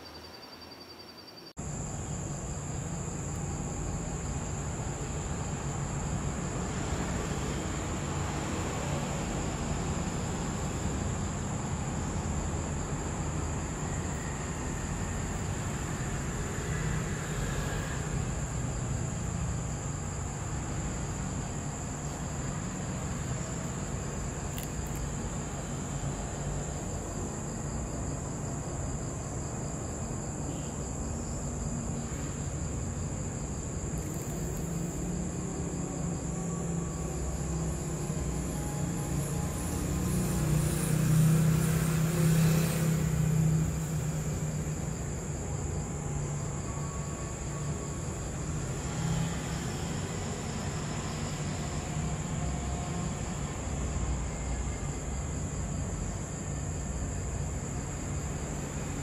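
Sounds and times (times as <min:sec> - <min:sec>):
insects trilling: 0:00.0 - 0:59.0.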